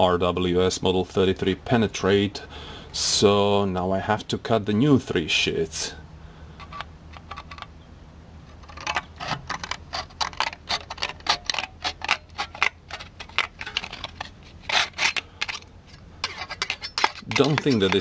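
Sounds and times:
scissors snipping sheet metal: 0:16.6 - 0:18.0.

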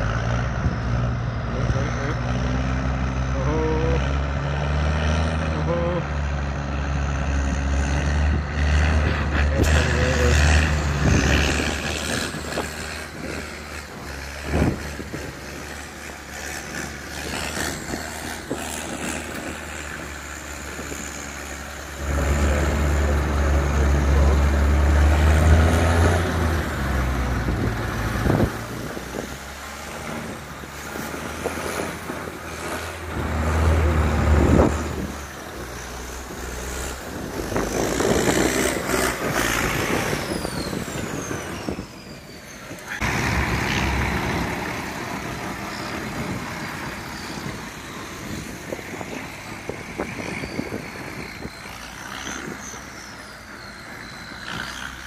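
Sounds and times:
tractor diesel engine under load: 0:00.0 - 0:55.0.

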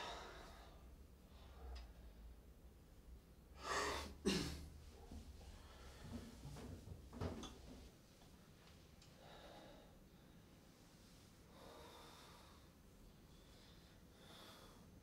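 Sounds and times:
low room hum: 0:00.0 - 0:15.0
man breathing heavily: 0:11.5 - 0:15.0.

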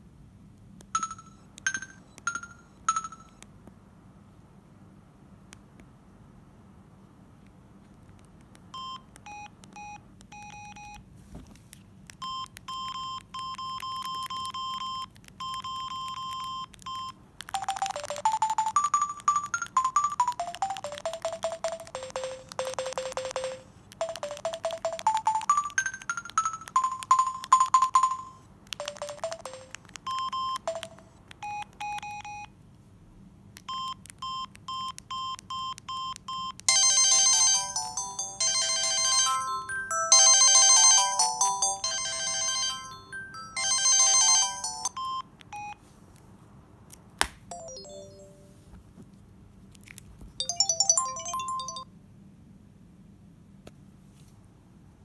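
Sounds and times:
phone electronic beeps: 0:01.0 - 0:03.4, 0:08.8 - 0:11.0, 0:12.2 - 0:32.5, 0:33.7 - 0:36.6, 0:37.6 - 0:45.8, 0:47.5 - 0:48.6, 0:50.4 - 0:51.8
phone polyphonic tune: 0:17.6 - 0:29.8, 0:36.7 - 0:45.0, 0:47.5 - 0:48.7, 0:50.4 - 0:51.9.

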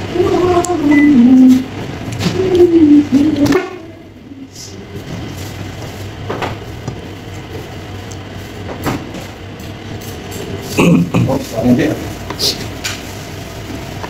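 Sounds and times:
steady low hum: 0:00.0 - 0:14.0
quiet chewing: 0:07.3 - 0:08.3.

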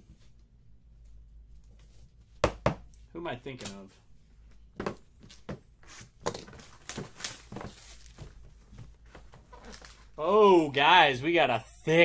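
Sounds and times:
cards tapping and rustling: 0:06.2 - 0:10.0.

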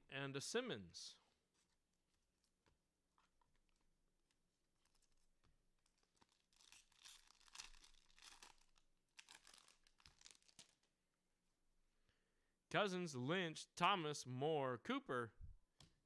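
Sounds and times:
wrapper crinkling and tearing: 0:04.8 - 0:10.9.

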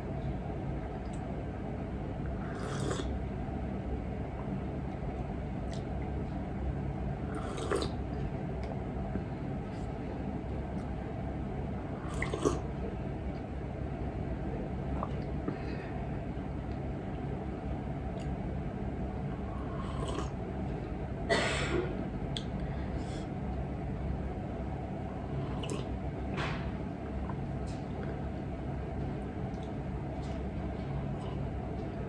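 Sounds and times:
low room hum: 0:00.0 - 0:32.0
slurping hot tea from a cup: 0:02.5 - 0:03.1, 0:07.3 - 0:07.9.

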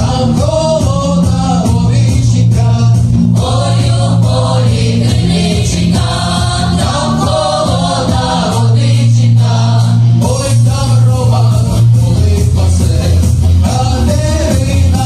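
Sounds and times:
amplified instrumental backing: 0:00.0 - 0:15.0
men singing into microphones: 0:00.0 - 0:15.0
women's choir singing: 0:03.4 - 0:10.0.

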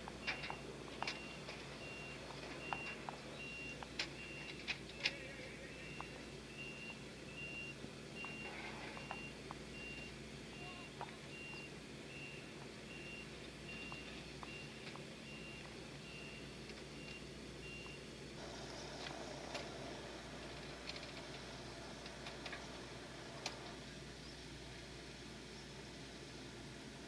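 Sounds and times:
reversing alarm beeping: 0:00.1 - 0:18.1.

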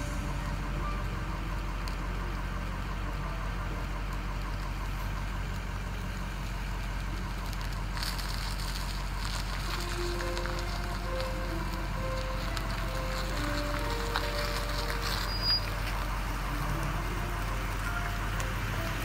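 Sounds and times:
car engine rumbling: 0:00.0 - 0:19.0.

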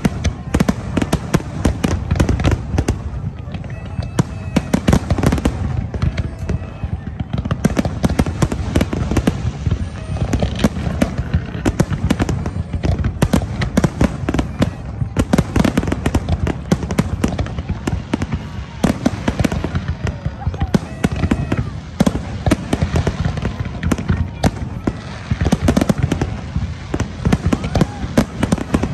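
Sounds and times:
fireworks bursting with sharp bangs: 0:00.0 - 0:28.9.

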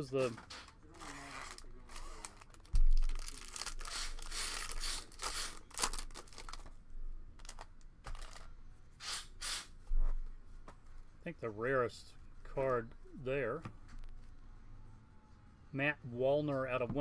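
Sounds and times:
foil wrapper tearing and crinkling: 0:01.0 - 0:06.7.

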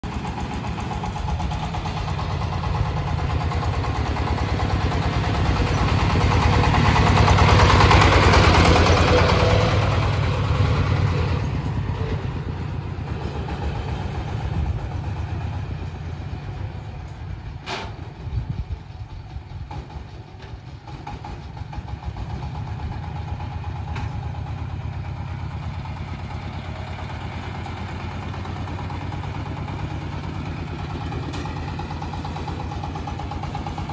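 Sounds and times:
engine chugging: 0:00.0 - 0:33.9.

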